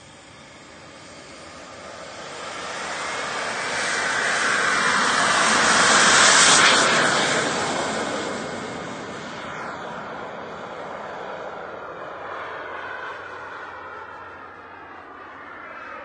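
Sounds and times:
model jet engine rushing: 0.0 - 16.0.

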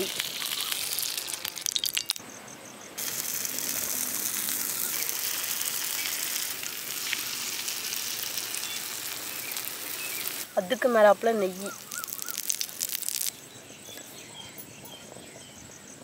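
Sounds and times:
ghee sizzling in pan: 0.0 - 2.2, 3.0 - 13.4.

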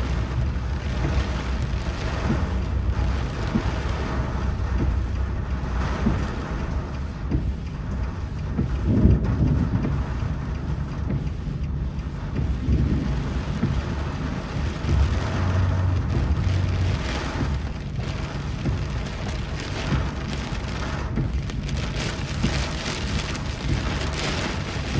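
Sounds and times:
heavy rain hiss: 0.0 - 24.9
vehicle low rumble: 0.0 - 24.9.

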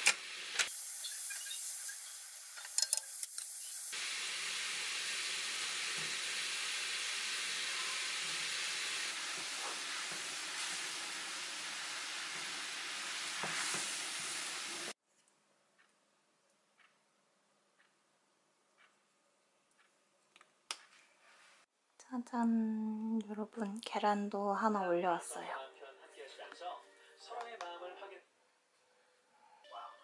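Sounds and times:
sauce bubbling and sizzling in a pan: 0.7 - 15.0.

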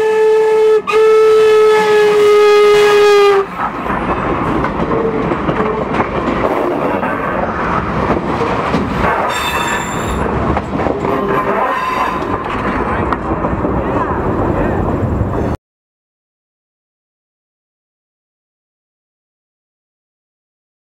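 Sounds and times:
steam locomotive whistle: 0.0 - 3.5, 9.3 - 10.2
train wheels clattering on rails: 3.4 - 14.5
high-pitched wheel squeal: 9.2 - 10.3, 11.5 - 12.3.

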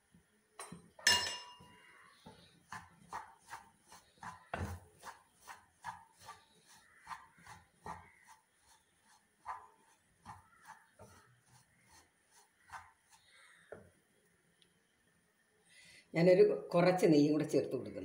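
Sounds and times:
metallic clang: 0.6 - 1.7
wooden spatula scraping a pan: 1.6 - 13.8.

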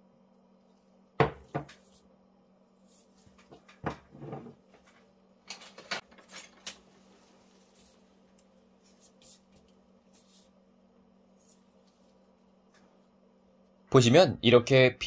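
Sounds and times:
cup knocking on table: 1.2 - 1.7.

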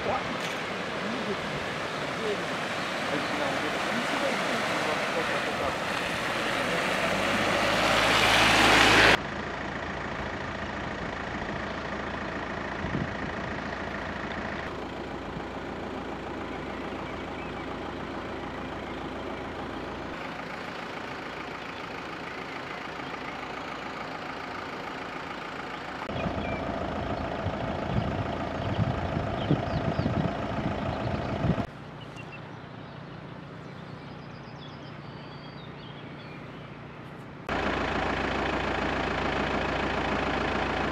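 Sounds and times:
tyres splashing through water: 0.0 - 9.2
outdoor background noise: 0.0 - 40.9.

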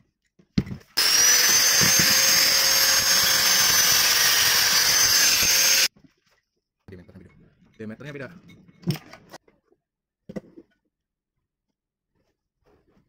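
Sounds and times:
angle grinder whining: 1.0 - 5.9.

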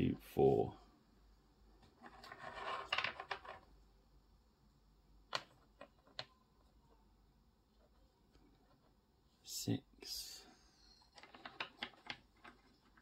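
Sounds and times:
miniatures sliding on mat: 1.8 - 3.7.

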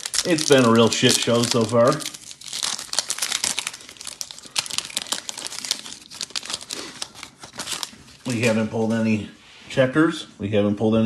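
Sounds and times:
foil wrapper crinkling: 0.0 - 8.7.

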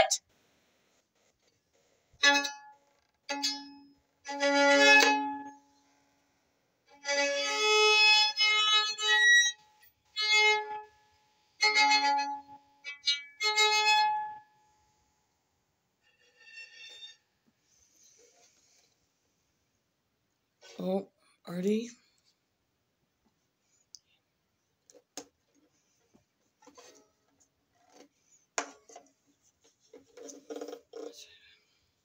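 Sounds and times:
violin bowing: 3.3 - 5.5, 11.6 - 14.3, 16.0 - 17.2.

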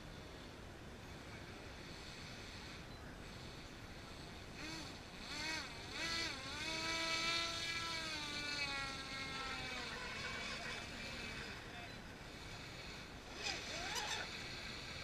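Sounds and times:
model boat motor whining: 4.4 - 15.0.

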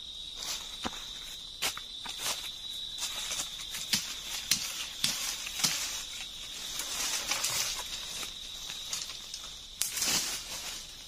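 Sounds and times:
high insect drone: 0.0 - 11.0
dry leaves rustling: 0.4 - 11.0
twigs snapping: 3.2 - 10.8.

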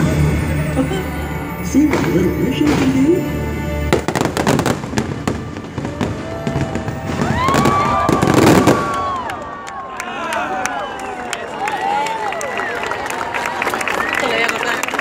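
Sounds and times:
fireworks bangs and crackles: 1.8 - 9.3.

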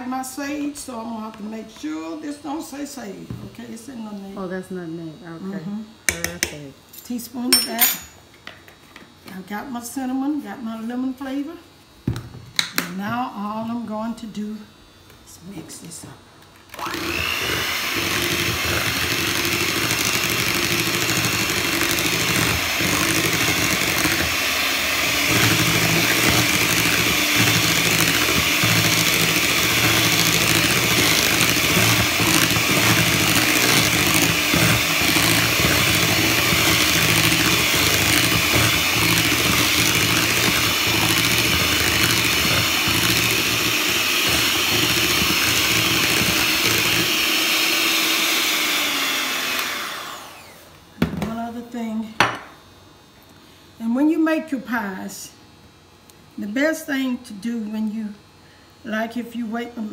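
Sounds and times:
electric hand mixer running: 16.6 - 50.8.

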